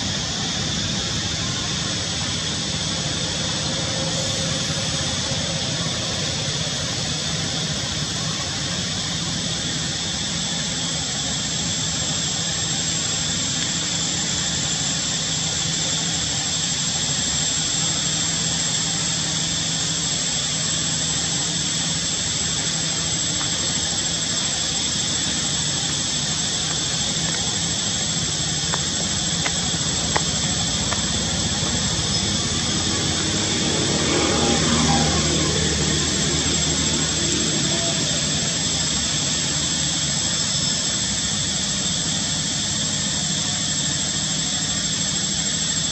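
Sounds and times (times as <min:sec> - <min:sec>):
high whine: 0:00.0 - 0:45.9.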